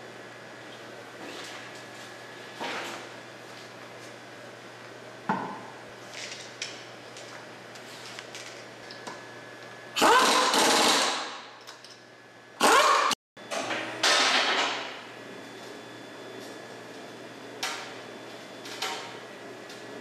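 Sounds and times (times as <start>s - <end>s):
air impact wrench hammering: 10.0s - 11.5s.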